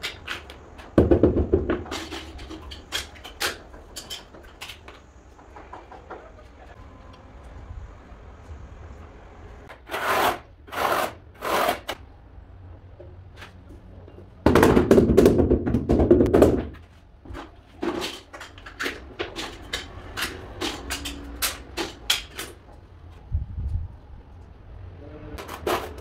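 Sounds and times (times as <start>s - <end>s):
scraping on ceramic tiles: 1.6s - 6.5s, 17.3s - 22.6s.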